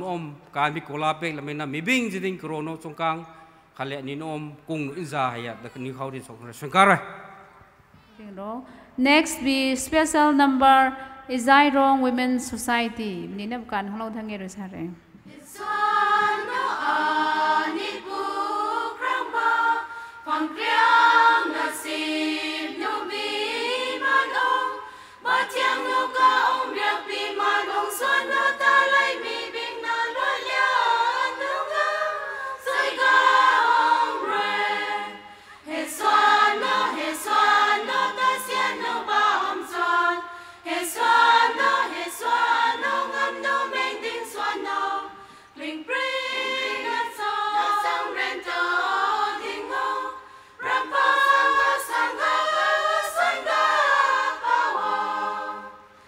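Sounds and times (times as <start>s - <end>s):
women's choir singing unaccompanied: 15.2s - 56.0s.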